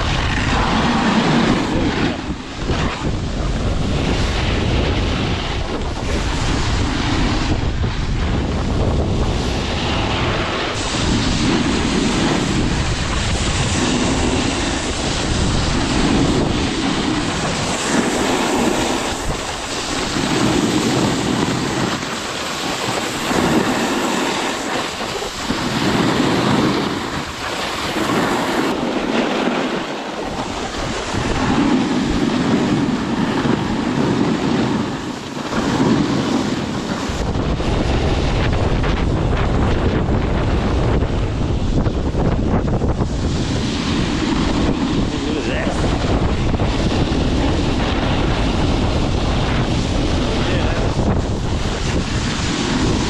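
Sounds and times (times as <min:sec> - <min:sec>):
skis scraping on icy snow: 0:00.0 - 0:08.3, 0:09.0 - 0:41.0, 0:43.0 - 0:53.0
wind rushing over microphone: 0:00.0 - 0:53.0.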